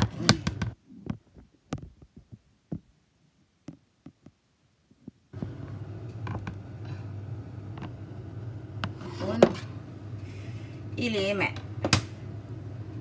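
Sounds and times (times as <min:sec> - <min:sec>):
steady low hum: 0:05.0 - 0:13.0.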